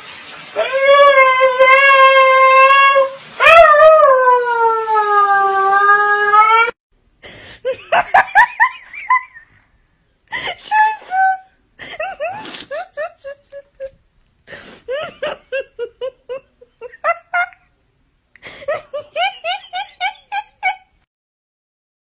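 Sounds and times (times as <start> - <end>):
person giggling: 7.2 - 9.6, 11.8 - 14.0, 14.6 - 17.7, 18.4 - 21.1.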